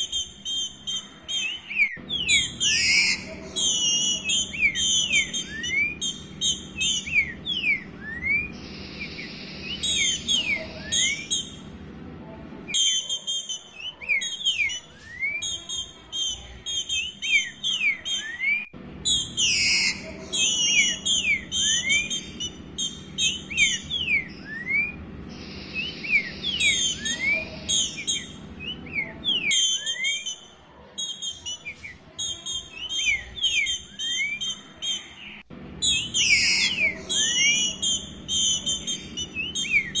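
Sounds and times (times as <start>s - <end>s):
bird whistled notes: 0.0s - 11.6s, 12.7s - 40.0s
high thin bird chirps: 0.0s - 11.7s.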